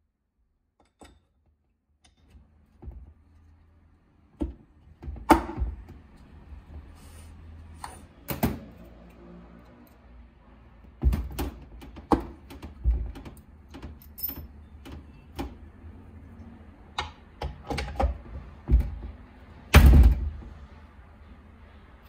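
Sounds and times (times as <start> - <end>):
metal parts clicking and knocking: 11.3 - 15.5.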